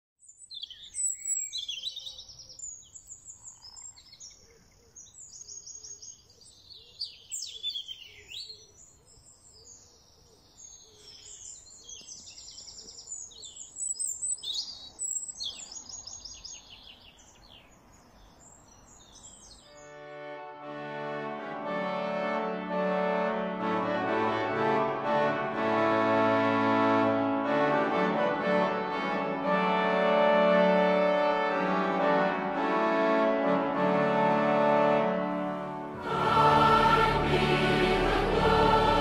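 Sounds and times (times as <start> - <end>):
songbirds trilling and chirping: 0.2 - 20.0.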